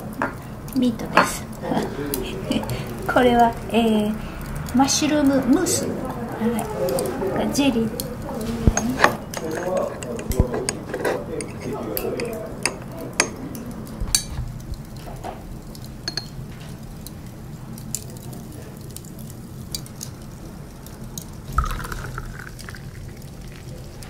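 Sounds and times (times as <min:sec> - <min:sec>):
utensils tapping tableware: 0:08.7 - 0:13.4, 0:16.0 - 0:16.4, 0:21.6 - 0:22.8
beer pouring into a glass: 0:21.2 - 0:24.0.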